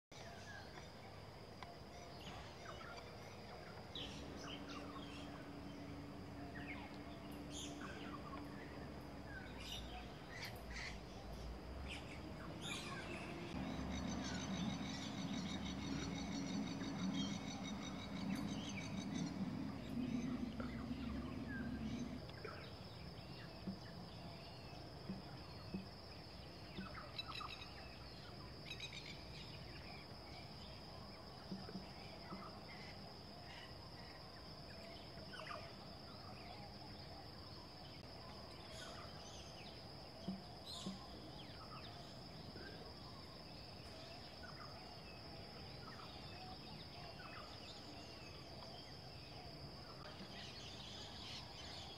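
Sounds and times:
steady high-pitched whine: 0.2s - 51.9s
bird chirps: 2.1s - 24.0s
low rumble: 11.9s - 23.9s.

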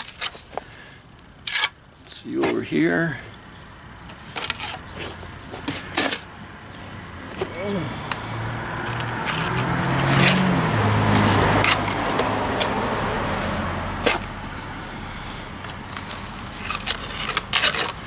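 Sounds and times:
vehicle driving past: 7.7s - 16.8s
cement scraping and knocking: 15.6s - 18.0s.

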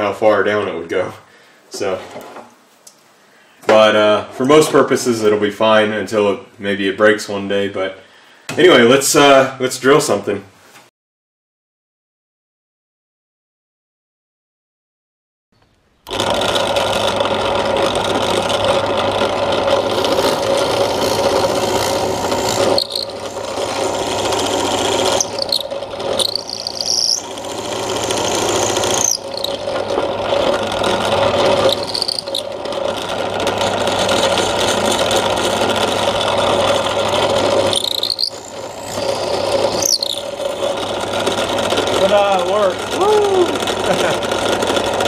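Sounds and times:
drill press boring into wood: 16.1s - 45.0s
motor hum: 16.1s - 45.0s.

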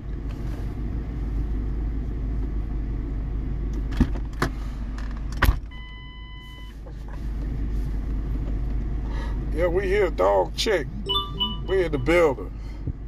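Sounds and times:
electronic beep: 10.7s - 12.4s.

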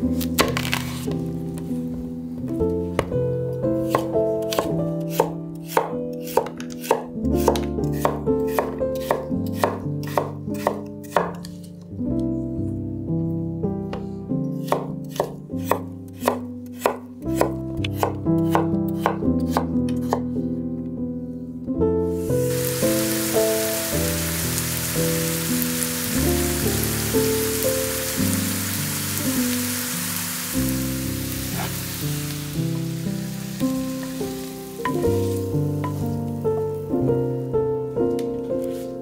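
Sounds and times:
knife chopping on cutting board: 3.9s - 11.5s, 14.6s - 20.2s.

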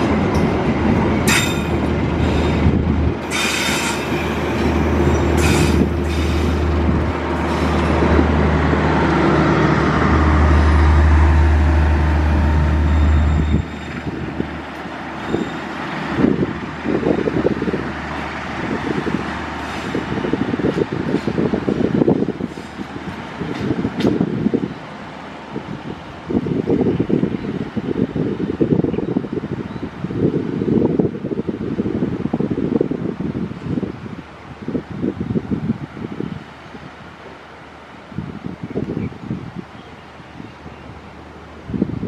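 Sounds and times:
train wheels squealing on rails: 1.2s - 6.8s, 12.5s - 14.2s, 15.1s - 16.1s
low diesel drone: 4.1s - 20.6s.

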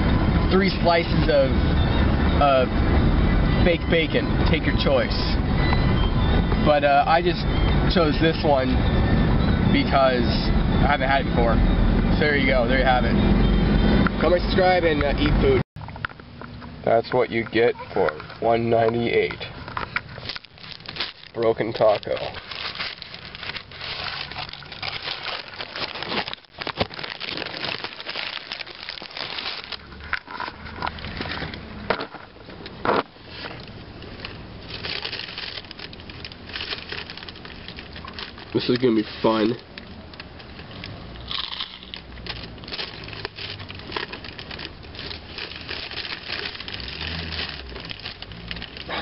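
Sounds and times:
paper wrapper rustling: 19.2s - 31.5s, 33.3s - 49.0s
crunching hard taco shell: 20.2s - 31.3s, 34.8s - 49.0s.

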